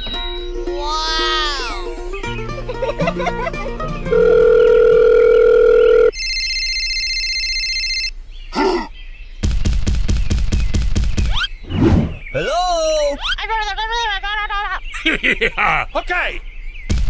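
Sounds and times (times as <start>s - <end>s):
light plucked background music: 0.0s - 5.2s
telephone ring tone: 4.1s - 8.1s.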